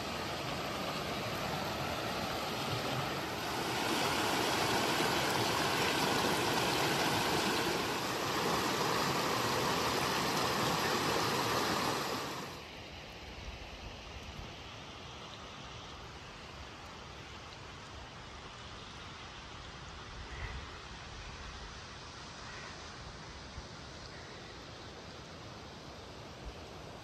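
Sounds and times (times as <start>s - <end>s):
creek rushing over rocks: 0.0s - 12.7s.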